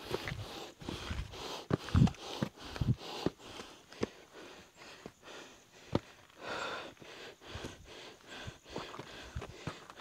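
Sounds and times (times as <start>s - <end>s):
heavy breathing: 0.0s - 10.0s
footsteps on gravel: 8.7s - 10.0s.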